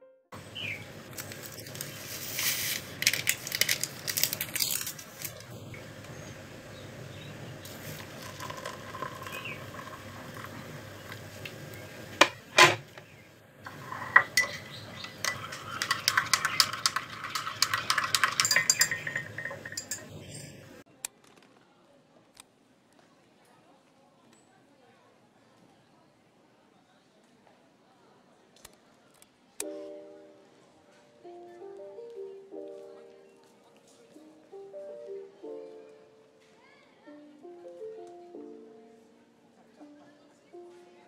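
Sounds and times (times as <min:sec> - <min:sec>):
water pouring into cup: 0:07.6 - 0:11.4, 0:13.7 - 0:20.1
spoon stirring in cup: 0:07.7 - 0:11.2, 0:13.7 - 0:20.8
spoon clinking against jar: 0:13.7 - 0:20.6.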